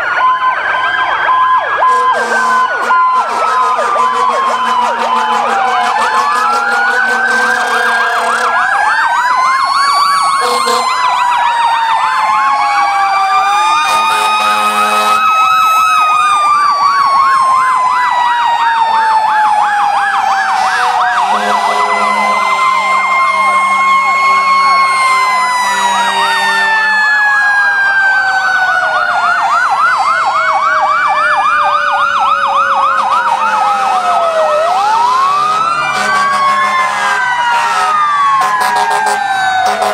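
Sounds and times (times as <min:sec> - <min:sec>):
fast yelping electronic sirens: 0:00.0 - 0:39.9
siren winding down: 0:00.0 - 0:39.9
wailing sirens: 0:00.0 - 0:39.9
horn blasts: 0:01.9 - 0:08.6, 0:10.4 - 0:11.0, 0:13.8 - 0:15.3, 0:20.6 - 0:24.8, 0:25.6 - 0:26.9, 0:35.2 - 0:39.9.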